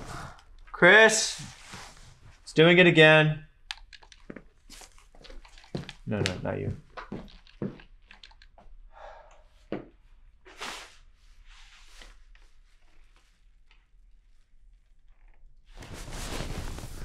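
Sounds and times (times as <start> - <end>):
broom swishing scrapes: 1.1 - 2.4, 10.5 - 11.9, 15.8 - 17.0.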